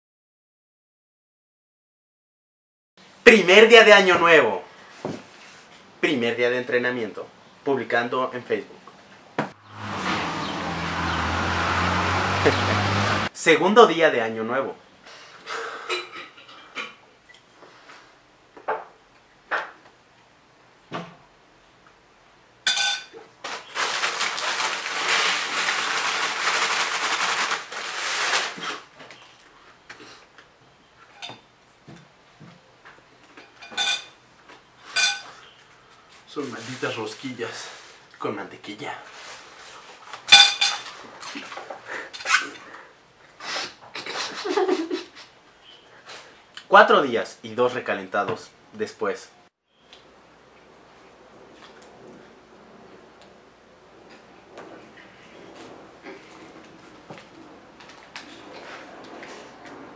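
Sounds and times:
loud crackling noise: 9.5 - 13.3, 23.4 - 29.0, 51.2 - 59.9
cutlery clinking on plate: 22.7 - 23.2, 33.4 - 34.2, 40.3 - 40.9.

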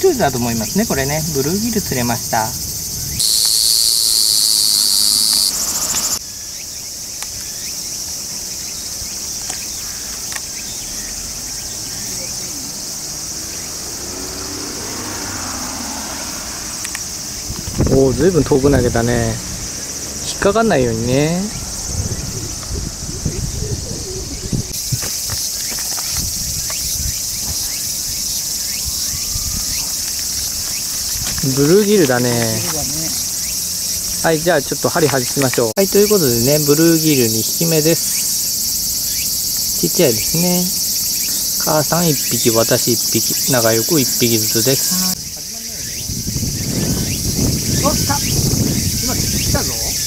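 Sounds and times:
cicada buzzing: 0.0 - 50.0
insects hissing in background: 0.0 - 50.0
short rising chirps: 3.1 - 6.2.

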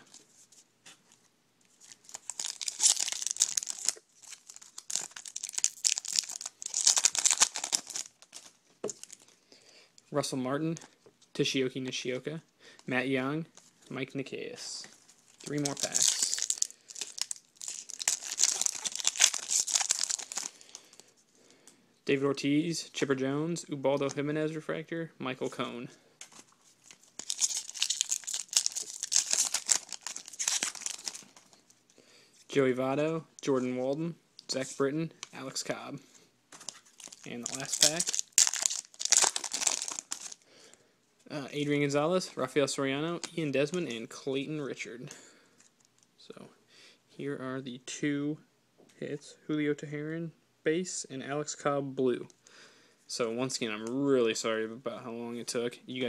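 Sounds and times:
foil wrapper tearing and crinkling: 1.9 - 9.2, 15.4 - 20.6, 26.8 - 31.4, 36.6 - 40.4.

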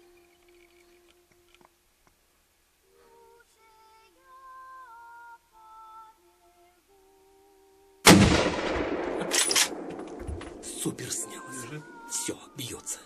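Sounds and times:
loud gunshot with echo: 8.1 - 11.0
soft background music: 10.6 - 13.0.

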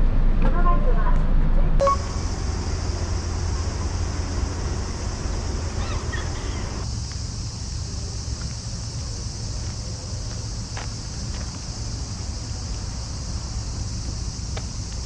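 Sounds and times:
wind rumbling on microphone: 1.5 - 6.8
faint chirp: 1.8 - 6.8
steady high hiss: 1.8 - 15.0.

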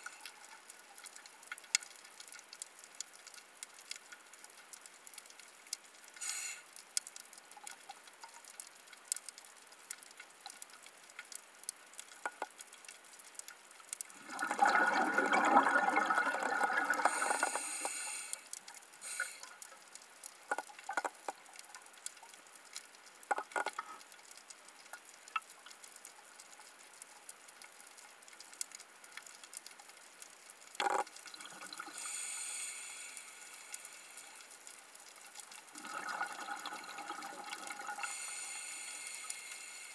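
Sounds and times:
faint clicks and crackles: 0.0 - 39.9
regulator inhale hiss: 6.2 - 6.7, 17.0 - 19.6, 31.9 - 34.5, 38.0 - 39.9
exhaled bubbles underwater: 14.2 - 17.6, 35.7 - 38.2.

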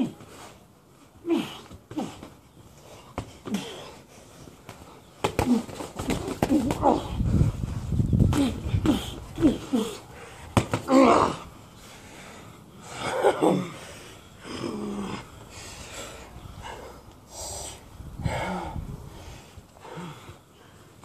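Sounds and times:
people gasping and grunting: 0.0 - 7.6, 8.2 - 21.0
boxing glove punch: 4.7 - 7.1, 10.5 - 11.1.

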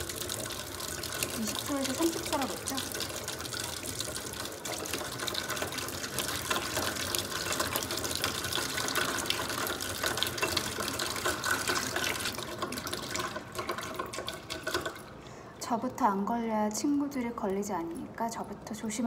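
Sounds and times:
faucet running into steel sink: 0.0 - 15.2.

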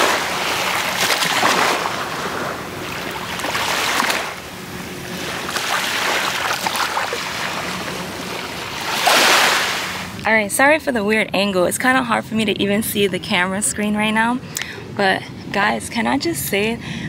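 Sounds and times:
small waves washing onto beach: 0.0 - 10.2.

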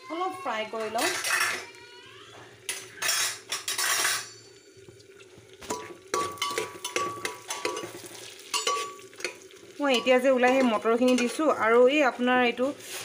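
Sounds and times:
peas frying in butter: 2.4 - 13.0
metal spoon scraping a pot: 2.7 - 4.4, 5.7 - 9.4
ringing clinks on metal pot: 3.0 - 4.8, 5.7 - 7.9, 8.5 - 9.0.

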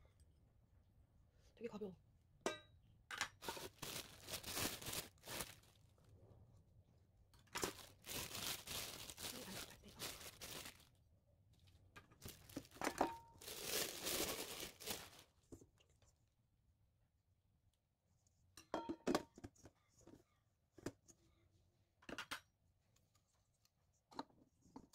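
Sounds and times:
plastic bag crinkling: 3.4 - 6.0, 7.6 - 11.0, 12.2 - 15.4.

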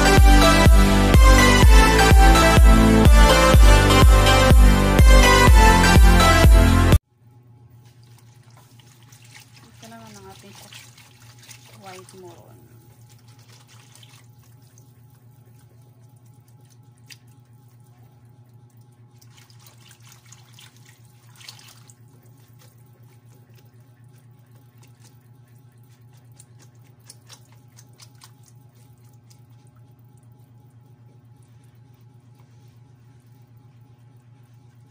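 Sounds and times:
steady low hum: 0.0 - 34.9
batter sloshing: 7.7 - 34.9.

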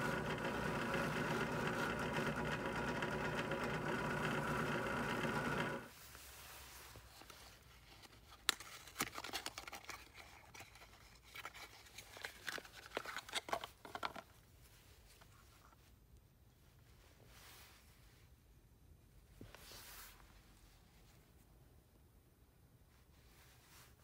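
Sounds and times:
drill press motor hum: 0.0 - 5.9.

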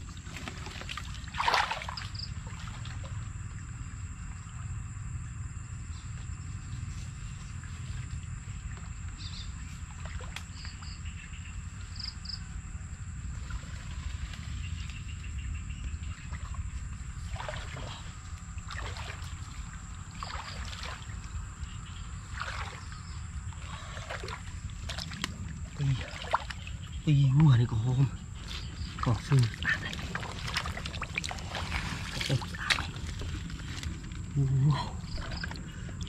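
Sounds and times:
water splashing and sloshing: 0.0 - 12.1, 13.1 - 36.0
faint high whine: 1.6 - 36.0
low rumble: 10.6 - 36.0.

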